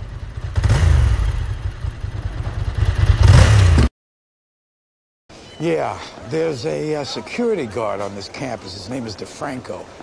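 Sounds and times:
vehicle engine running and revving: 0.0s - 3.9s.

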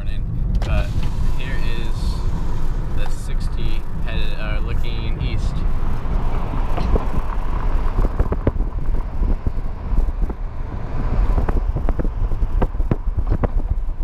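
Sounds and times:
car road noise from inside: 0.0s - 14.0s.

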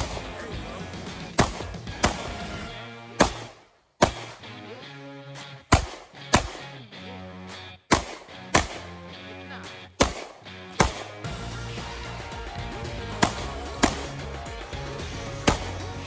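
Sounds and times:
pistol shots: 0.0s - 0.4s, 1.3s - 4.4s, 5.7s - 6.8s, 7.9s - 9.0s, 10.0s - 11.3s, 13.1s - 14.3s, 15.4s - 15.9s
background music with held notes: 0.0s - 3.6s, 4.3s - 16.0s.

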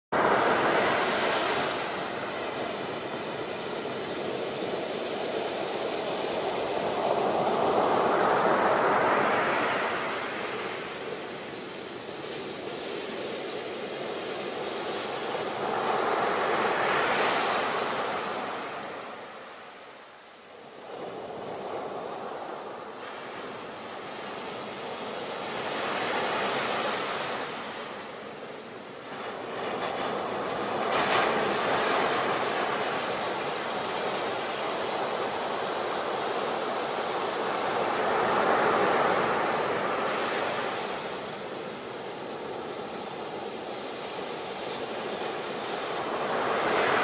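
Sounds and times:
waves breaking on shore: 0.2s - 47.0s.

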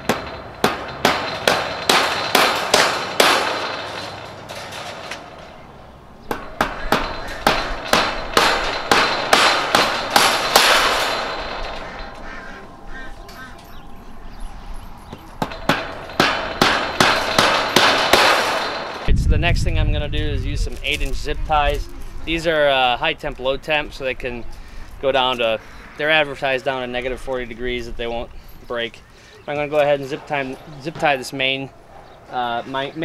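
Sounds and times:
hammer blows ringing: 0.0s - 5.6s, 6.3s - 19.1s.

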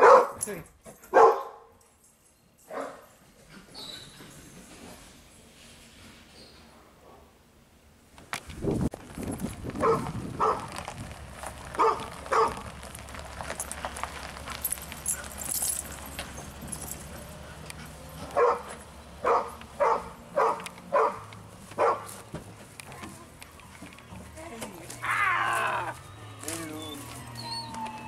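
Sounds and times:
dog barking: 0.0s - 0.4s, 1.1s - 1.7s, 2.7s - 3.1s, 9.8s - 10.7s, 11.8s - 12.6s, 18.3s - 22.1s.

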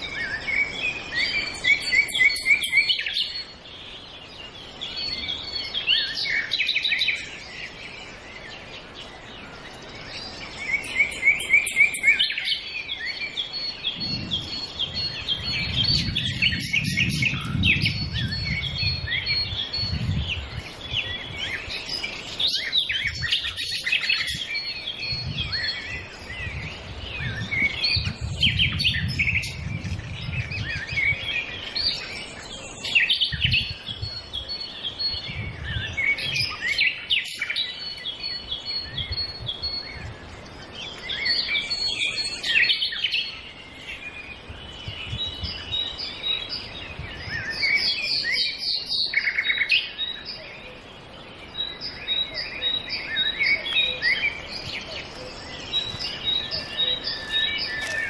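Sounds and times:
many birds chirping: 0.0s - 58.0s.

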